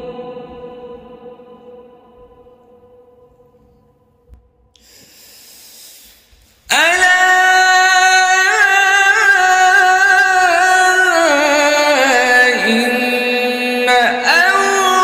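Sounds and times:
man breathing: 0:04.8 - 0:06.7
man reciting melodically: 0:06.6 - 0:15.0.

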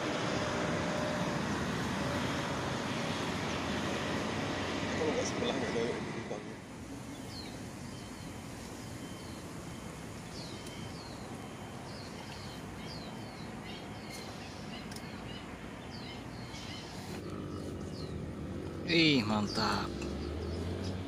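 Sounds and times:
outdoor hiss: 0:06.6 - 0:17.3
small bird chirping: 0:07.1 - 0:21.0.

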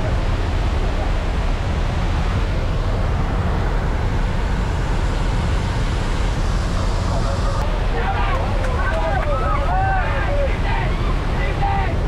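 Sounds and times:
plane engine rumble: 0:00.0 - 0:12.0
wind rushing in plane cabin: 0:00.0 - 0:12.0.

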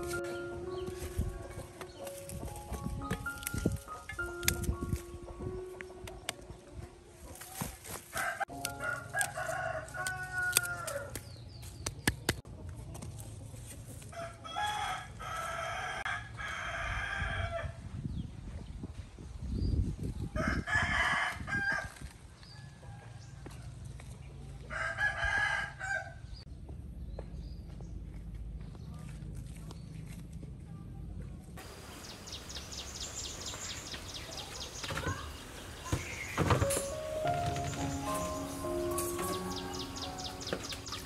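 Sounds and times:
soft thuds of footsteps on soil: 0:00.0 - 0:04.0, 0:07.2 - 0:08.4
roosters crowing: 0:08.1 - 0:11.2, 0:14.2 - 0:17.8, 0:24.7 - 0:26.3, 0:32.6 - 0:41.0.

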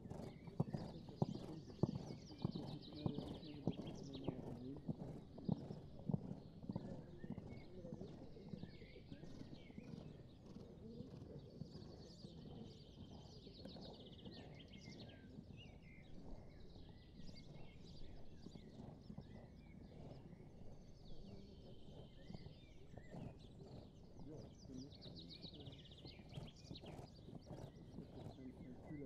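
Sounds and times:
horse hoofbeats on sand: 0:00.0 - 0:08.2, 0:21.7 - 0:29.0
birds chirping: 0:20.9 - 0:29.0.

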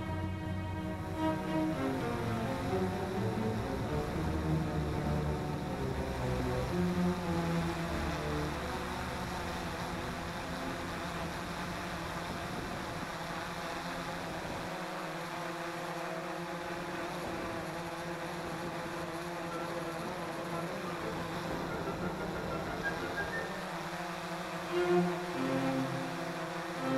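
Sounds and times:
drone motors and propellers: 0:00.0 - 0:26.9.

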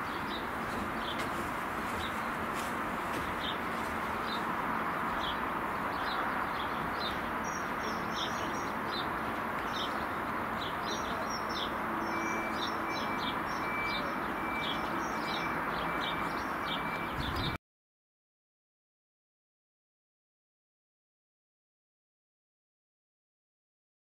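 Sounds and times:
small birds chirping: 0:00.0 - 0:17.6.

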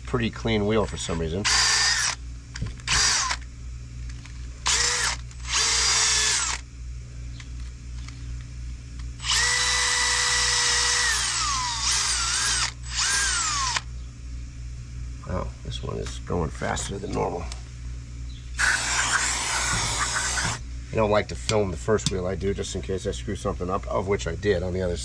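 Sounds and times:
cordless drill whirring: 0:01.4 - 0:03.4, 0:04.6 - 0:06.6, 0:09.2 - 0:13.9, 0:18.6 - 0:20.6.

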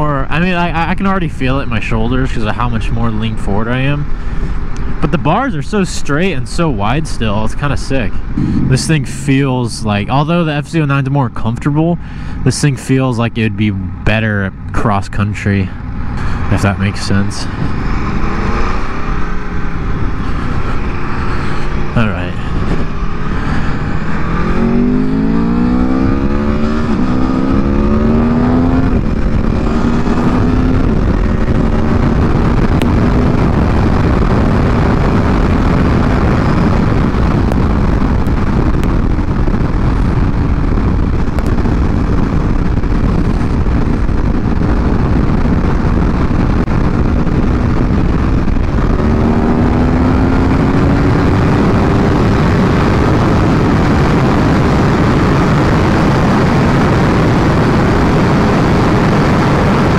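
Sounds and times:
wind noise: 0:00.0 - 0:59.9
motorcycle engine accelerating: 0:06.4 - 0:11.0, 0:15.7 - 0:59.9.

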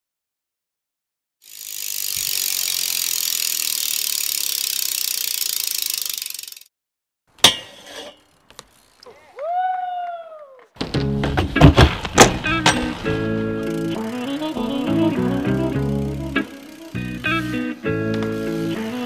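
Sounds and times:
bicycle freewheel clicking: 0:01.4 - 0:06.7, 0:08.2 - 0:09.1, 0:13.6 - 0:17.6
rising and falling tone: 0:12.7 - 0:19.0.

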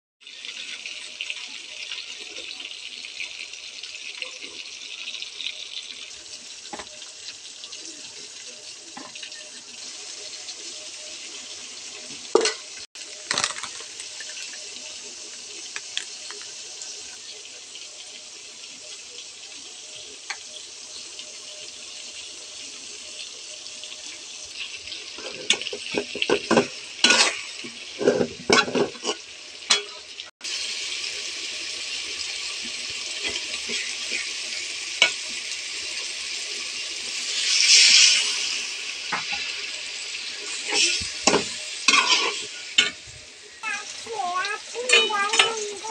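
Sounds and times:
food sizzling in oil: 0:00.2 - 0:45.9
metal spatula scraping pot: 0:25.1 - 0:30.1, 0:40.4 - 0:43.1.

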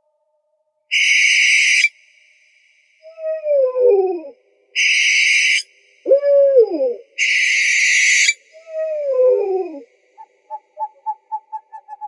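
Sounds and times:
owl hissing screech: 0:00.9 - 0:01.9, 0:04.8 - 0:05.7, 0:07.2 - 0:08.4
owl short quick toots: 0:04.8 - 0:05.6
owl falling call: 0:04.8 - 0:09.8.

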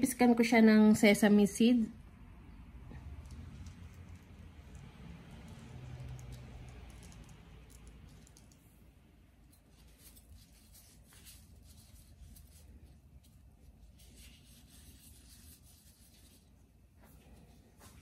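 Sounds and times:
seeds rustling and ticking: 0:03.1 - 0:08.7.

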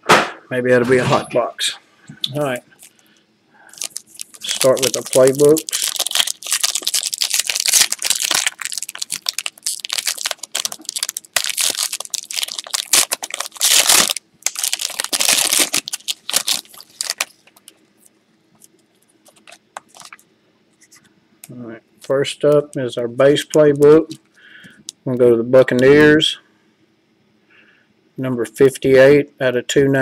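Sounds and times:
foil wrapper crinkling and tearing: 0:03.6 - 0:17.8, 0:18.6 - 0:20.2.

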